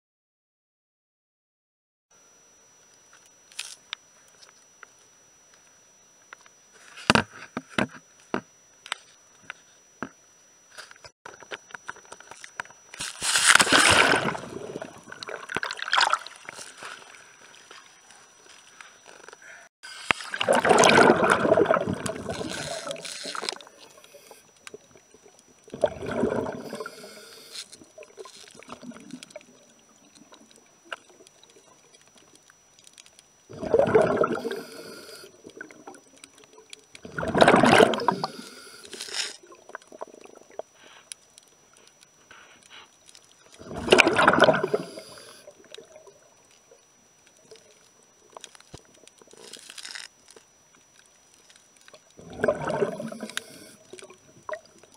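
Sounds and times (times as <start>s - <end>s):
water gurgling and bubbling: 13.5s - 17.7s, 20.2s - 27.2s, 27.8s - 31.8s, 33.5s - 38.6s, 39.4s - 40.7s, 43.6s - 46.4s, 52.1s - 54.9s.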